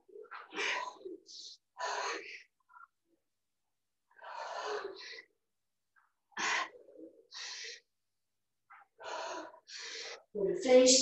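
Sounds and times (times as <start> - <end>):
woman breathing hard: 0.3 - 3.0, 4.1 - 5.4, 6.3 - 8.0, 8.7 - 10.3.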